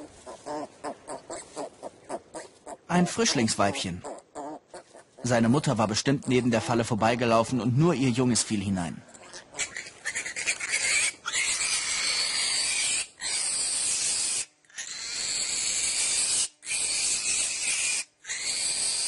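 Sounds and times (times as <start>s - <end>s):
piglet squealing: 0.0s - 5.0s, 9.2s - 19.0s.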